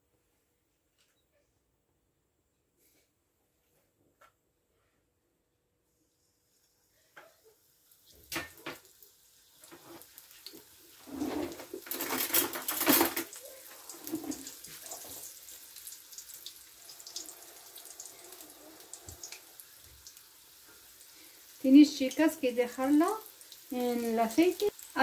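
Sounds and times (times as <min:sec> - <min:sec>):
pastries sizzling in hot oil: 0:06.5 - 0:25.0.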